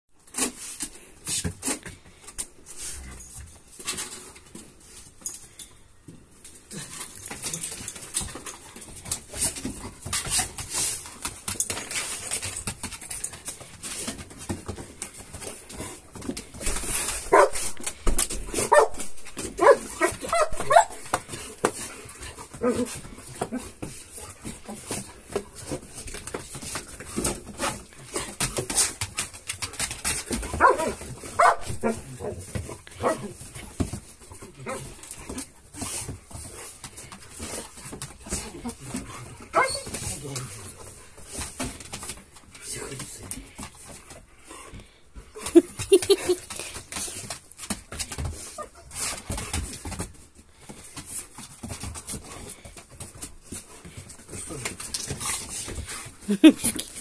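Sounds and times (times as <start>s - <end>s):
dogs whining and barking: 18.6s - 21.2s, 30.5s - 33.4s, 39.5s - 40.0s, 45.5s - 46.6s.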